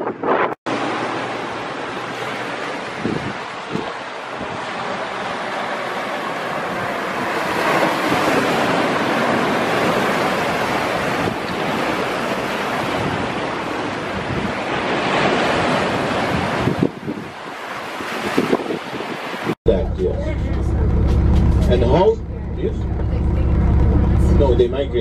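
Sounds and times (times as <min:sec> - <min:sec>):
sea waves breaking on stone shore: 0:00.7 - 0:19.6.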